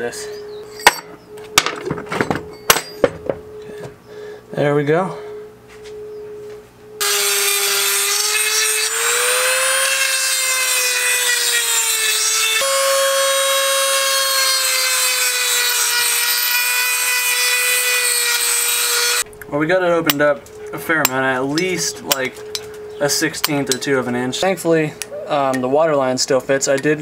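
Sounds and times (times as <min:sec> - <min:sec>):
rotary tool grinding metal: 0:07.0 - 0:19.2.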